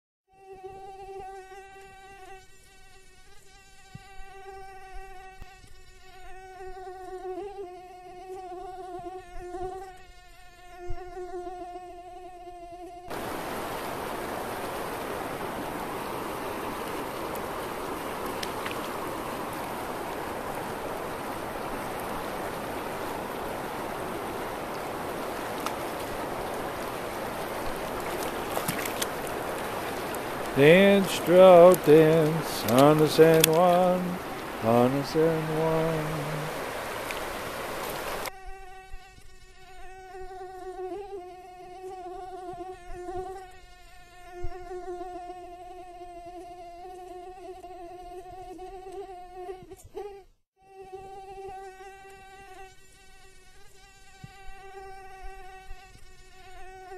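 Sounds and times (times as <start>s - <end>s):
mosquito buzzing whine: 0.3s - 56.9s
river rushing: 13.1s - 38.3s.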